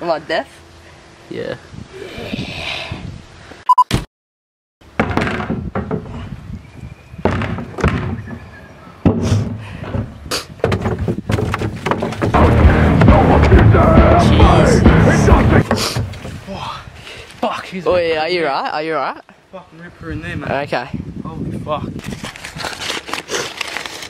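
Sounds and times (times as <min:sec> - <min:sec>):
plastic bin thudding and banging: 0:05.0 - 0:06.2, 0:07.2 - 0:08.4, 0:09.0 - 0:13.6.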